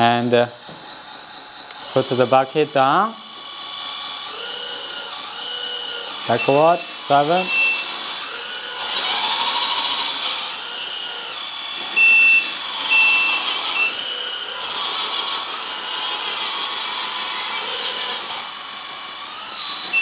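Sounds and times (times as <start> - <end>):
toy truck motor whine: 0.0 - 20.0
electronic reversing beeps: 6.2 - 8.0, 11.9 - 14.2.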